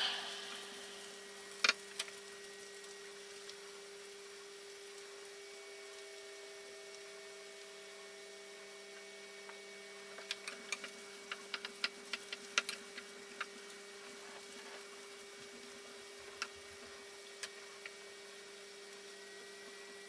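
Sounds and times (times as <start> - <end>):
steady hum: 0.0 - 1.9.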